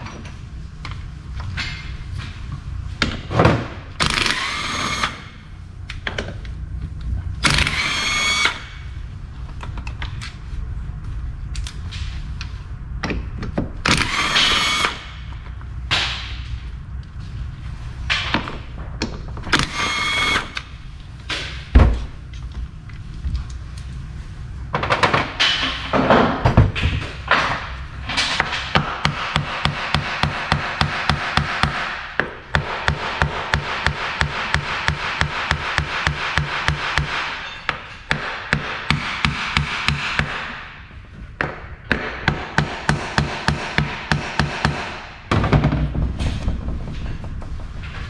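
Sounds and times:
cordless power tool whirring: 4.0s - 5.2s, 7.4s - 8.7s, 13.9s - 15.0s, 19.6s - 20.6s
heavy thud: 21.7s - 22.2s.

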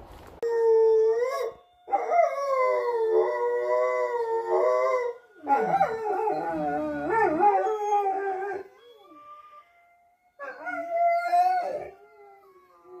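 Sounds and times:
dog howling: 0.7s - 13.0s.

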